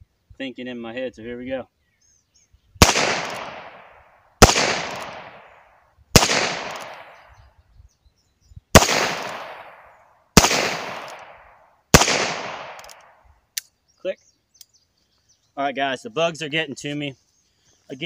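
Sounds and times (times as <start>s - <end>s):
revolver shots: 2.8s - 5.5s, 6.2s - 7.2s, 8.8s - 9.8s, 10.4s - 11.4s, 12.0s - 12.8s.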